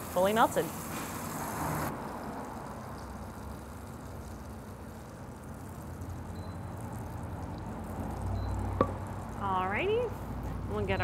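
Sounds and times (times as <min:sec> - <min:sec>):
butter sizzling in a skillet: 0:00.0 - 0:06.2.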